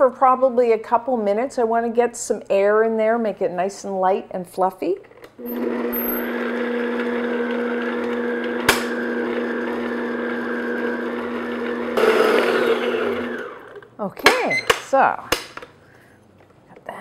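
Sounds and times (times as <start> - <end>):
stand mixer motor hum: 5.4 - 13.8
mixer click: 8.1 - 9.2.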